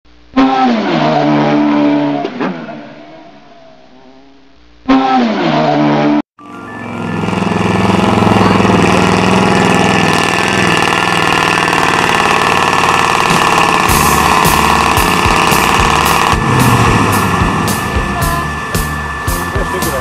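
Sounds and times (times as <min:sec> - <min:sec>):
engine falling in pitch: 0:00.4 - 0:20.0
diesel truck engine running hard: 0:06.4 - 0:20.0.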